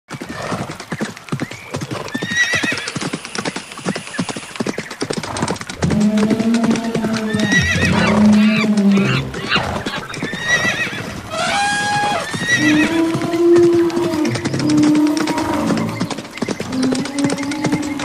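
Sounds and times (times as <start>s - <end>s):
horse hoofbeats galloping: 0.1s - 18.0s
horse whinnying: 2.0s - 3.0s, 5.2s - 18.0s.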